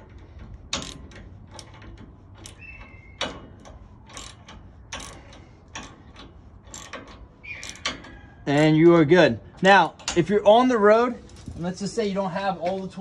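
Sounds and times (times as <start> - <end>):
hand ratchet clicking: 0.0 - 8.2.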